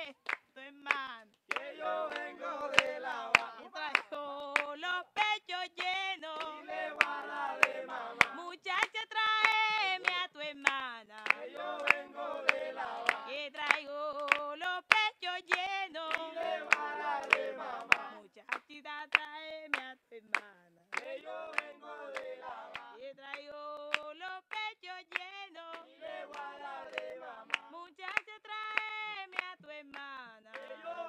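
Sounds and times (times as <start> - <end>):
hand clapping: 0.0 - 30.9
group singing folk song: 1.5 - 4.8, 6.2 - 8.4, 11.2 - 13.4, 15.9 - 18.2, 21.0 - 23.0, 25.6 - 27.7, 30.5 - 31.0.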